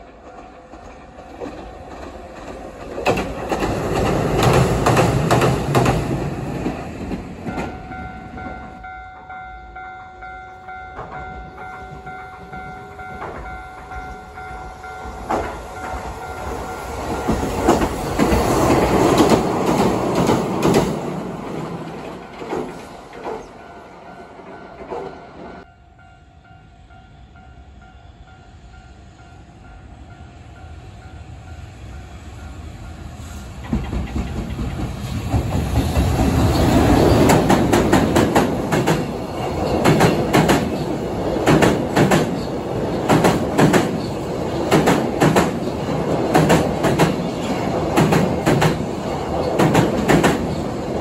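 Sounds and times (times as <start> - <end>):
tram wheels clattering on rails: 0.0 - 9.4, 10.2 - 25.7, 33.5 - 51.0.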